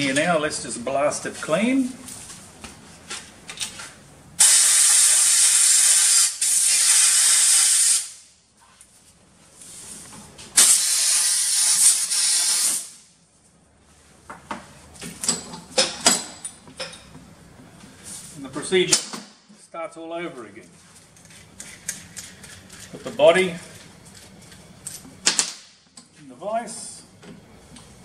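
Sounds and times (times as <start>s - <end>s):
compressed air blow gun hissing: 4.4s - 8.2s, 10.6s - 13.0s.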